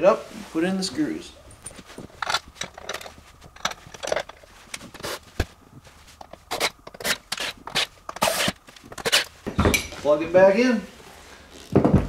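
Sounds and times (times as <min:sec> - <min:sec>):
handling scrapes clicks and rustles: 0:01.0 - 0:10.0.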